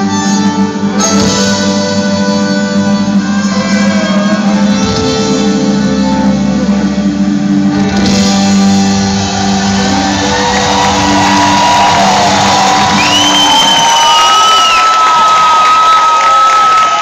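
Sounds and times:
fiddle-led country band: 0:00.0 - 0:11.1
crowd cheering and shouting: 0:07.8 - 0:17.0
shrill whistle: 0:10.9 - 0:17.0.

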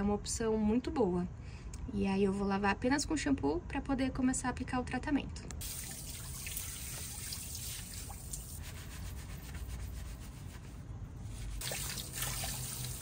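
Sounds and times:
water dripping and trickling: 0:05.6 - 0:08.7, 0:11.6 - 0:13.0
hands scrubbing wet hair: 0:05.6 - 0:10.7, 0:11.3 - 0:13.0.

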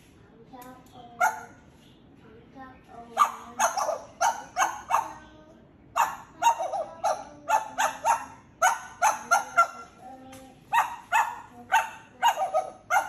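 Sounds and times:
parrot mimicking dog barks: 0:01.2 - 0:01.6, 0:03.1 - 0:05.3, 0:06.0 - 0:10.0, 0:10.6 - 0:13.0.

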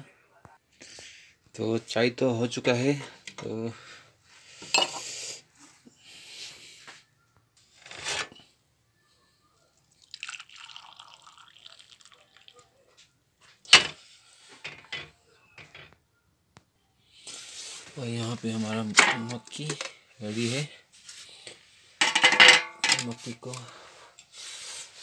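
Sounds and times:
tea pouring into a cup: 0:09.8 - 0:12.7
metal strainer and utensils clinking: 0:22.0 - 0:23.3.

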